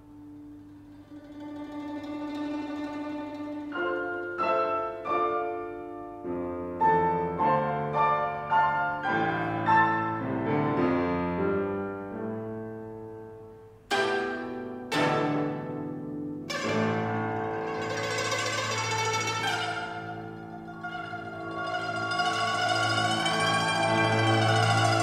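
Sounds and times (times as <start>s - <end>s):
plucked guzheng stroke: 0.0s - 5.3s, 13.9s - 25.0s
solo piano: 0.0s - 18.3s.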